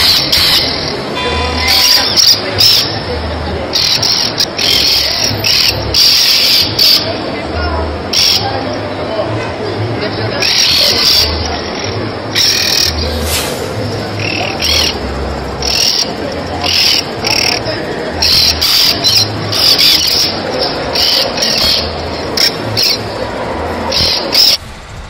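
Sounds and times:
flock of birds chattering: 10.1 - 23.2, 23.9 - 24.6.

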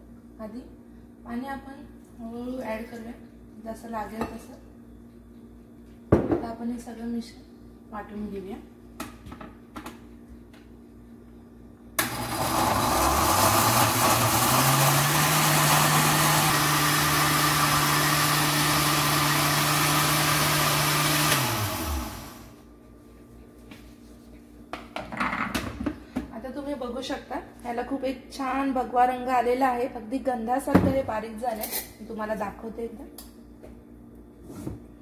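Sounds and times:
blender grinding: 12.0 - 22.5.

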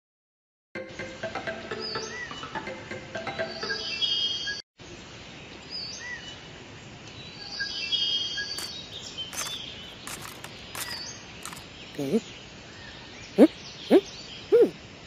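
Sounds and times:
birds chirping: 8.4 - 12.4, 13.1 - 14.8
short clicks: 8.6 - 12.2.

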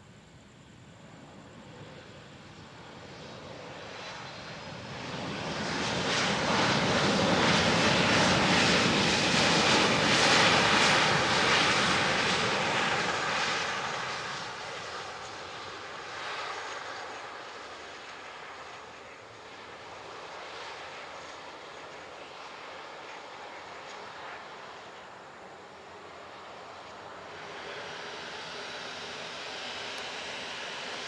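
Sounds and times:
jet engines on runway: 0.0 - 31.0.

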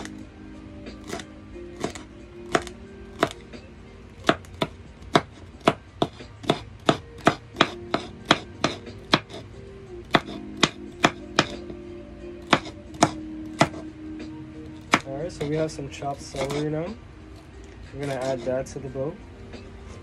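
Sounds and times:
knife chopping on cutting board: 1.0 - 3.4, 4.2 - 9.4, 10.0 - 11.7, 12.4 - 13.9, 14.8 - 15.6, 16.2 - 16.6, 18.0 - 18.5.

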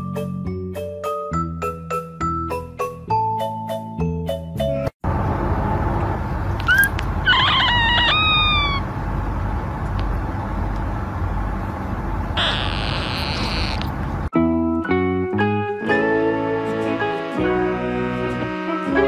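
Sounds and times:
steady low rumble: 5.0 - 14.3
kitten mewing: 6.6 - 8.9.

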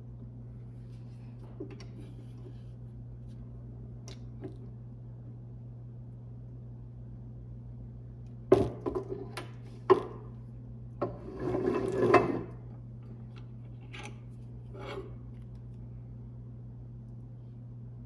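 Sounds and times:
scraping on a steel base: 11.0 - 12.6, 14.6 - 15.2.

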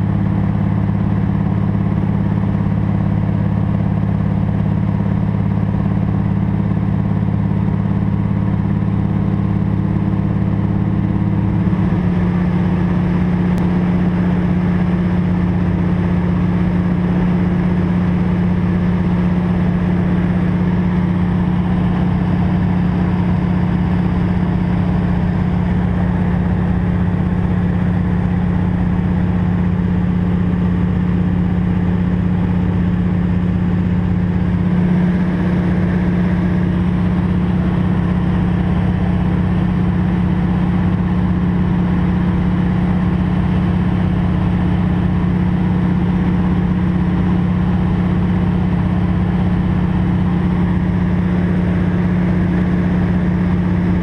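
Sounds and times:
propeller plane engine droning: 0.0 - 54.0.

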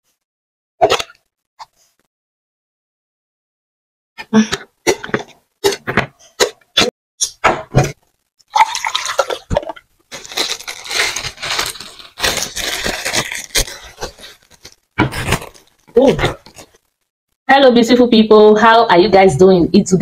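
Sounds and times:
water poured into glass: 8.5 - 9.8
plastic bag crinkling: 8.5 - 17.0.

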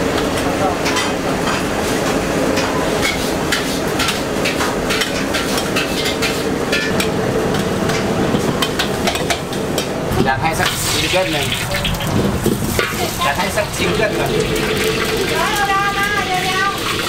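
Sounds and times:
kitchen noise: 0.0 - 17.0
food frying: 10.2 - 17.0.

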